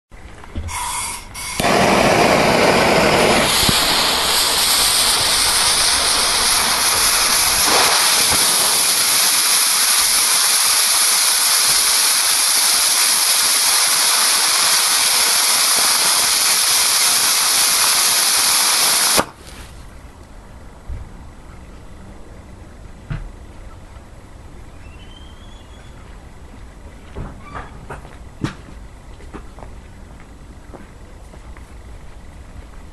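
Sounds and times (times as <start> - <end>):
rocket motor rushing hiss: 0.7 - 19.7
fizzing ignition: 0.7 - 19.8
sharp pop: 1.5 - 2.2, 3.2 - 9.0, 19.1 - 19.4.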